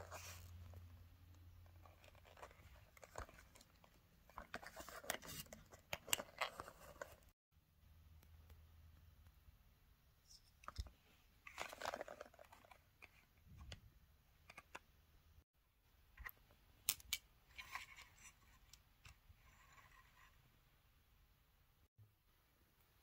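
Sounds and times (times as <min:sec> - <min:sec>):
packaging rustling: 0:11.5 - 0:12.8.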